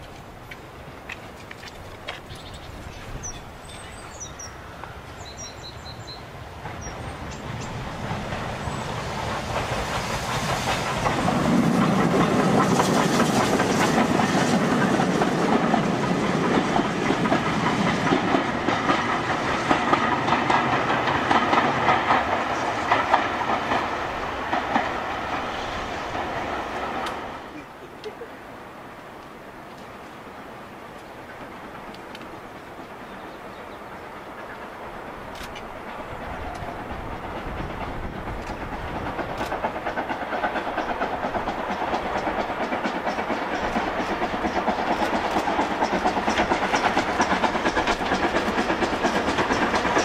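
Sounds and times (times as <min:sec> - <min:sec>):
wheels clicking over rail joints: 0:00.0 - 0:03.7, 0:06.6 - 0:25.5, 0:30.9 - 0:33.2, 0:34.9 - 0:50.0
steam locomotive passing: 0:00.0 - 0:50.0.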